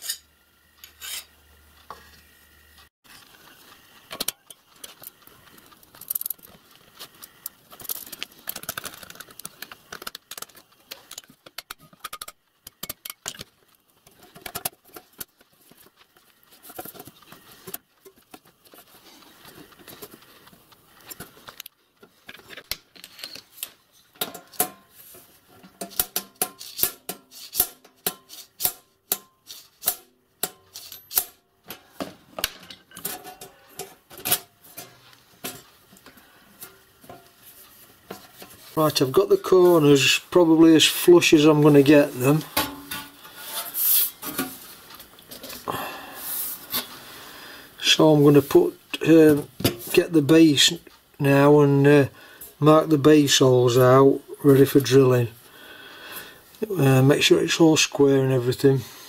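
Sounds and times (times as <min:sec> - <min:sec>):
tools scraping on sheet metal: 0:00.0 - 0:01.4, 0:24.2 - 0:31.9, 0:42.2 - 0:44.6.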